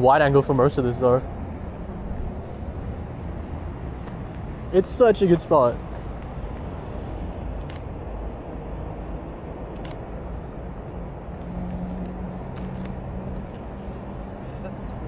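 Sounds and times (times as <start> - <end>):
distant traffic rumble: 0.0 - 15.0
camera shutter clicks: 7.6 - 7.9, 9.7 - 10.0, 12.5 - 13.0.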